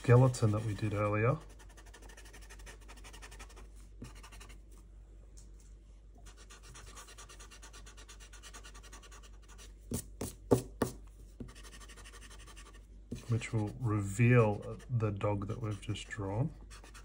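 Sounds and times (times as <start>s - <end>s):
eraser rubbing on paper: 0.0s - 4.6s.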